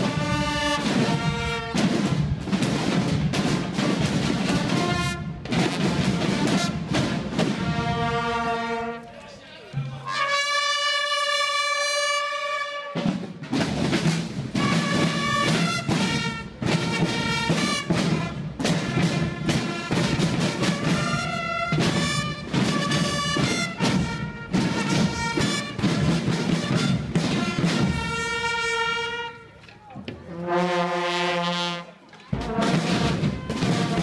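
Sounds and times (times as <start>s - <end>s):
brass chords blaring: 0.0s - 1.9s, 4.4s - 13.1s, 14.6s - 29.6s, 30.2s - 34.0s
bass and snare drums beating: 0.0s - 8.8s, 12.9s - 29.2s, 32.3s - 34.0s
brass band playing: 0.0s - 29.6s, 30.2s - 34.0s.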